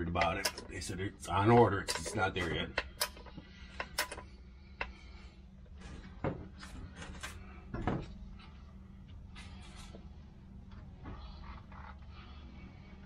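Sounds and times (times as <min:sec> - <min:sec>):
steady low hum: 0:00.0 - 0:13.0
tools clicking and knocking: 0:00.2 - 0:00.8, 0:01.5 - 0:04.9.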